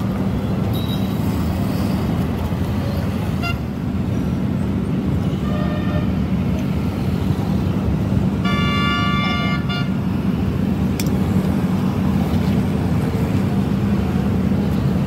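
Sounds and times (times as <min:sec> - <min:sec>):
low rumble of traffic: 0:00.0 - 0:15.0
vehicle horn: 0:05.4 - 0:06.2, 0:08.4 - 0:10.0.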